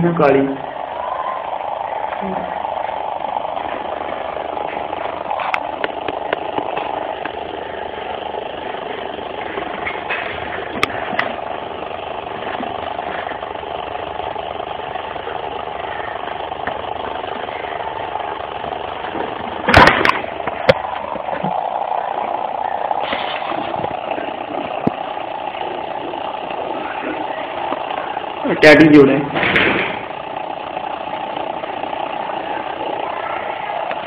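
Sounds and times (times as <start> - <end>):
mechanical engine drone: 0.0 - 34.0
sharp clicks: 5.0 - 8.2.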